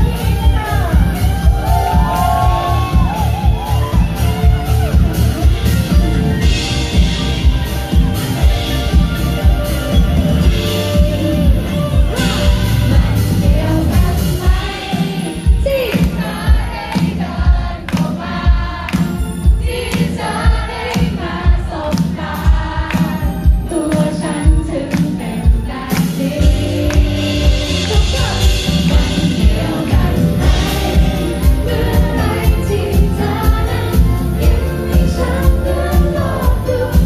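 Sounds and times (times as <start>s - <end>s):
drums with a steady beat: 0.0s - 37.0s
woman singing into a microphone: 23.6s - 37.0s.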